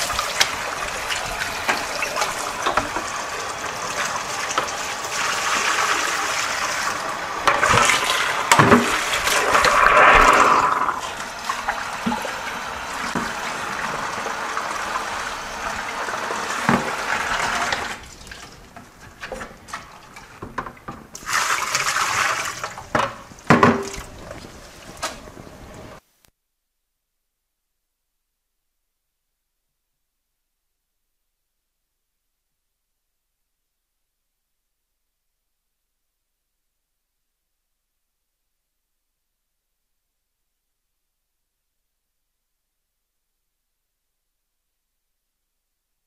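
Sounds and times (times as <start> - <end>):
water running into a sink: 0.0 - 18.8, 19.7 - 25.7
bucket knocking against sink: 7.5 - 9.1, 22.9 - 24.1.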